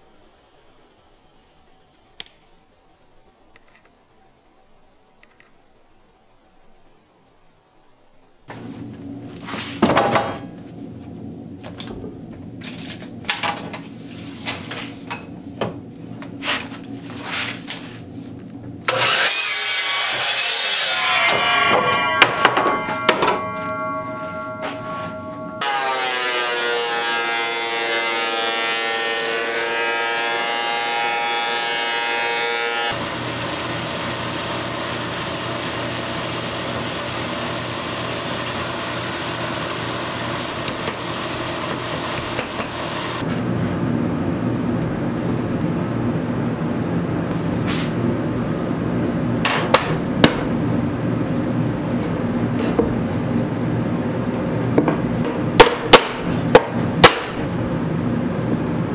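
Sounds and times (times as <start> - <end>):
even machine noise: 0.0 - 58.9
machine whine: 20.2 - 31.8.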